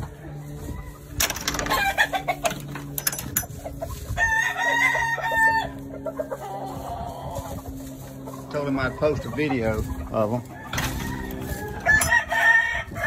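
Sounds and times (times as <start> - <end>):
rooster crowing: 4.2 - 6.2, 10.4 - 13.0.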